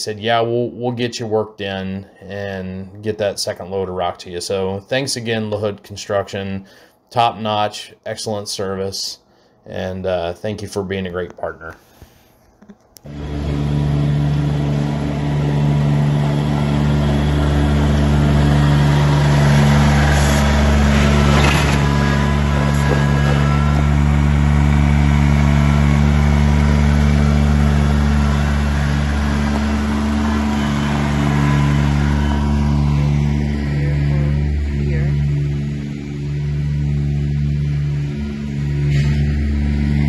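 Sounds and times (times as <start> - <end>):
tyres on gravel: 13.1 - 32.5
tractor diesel engine running: 13.1 - 40.0.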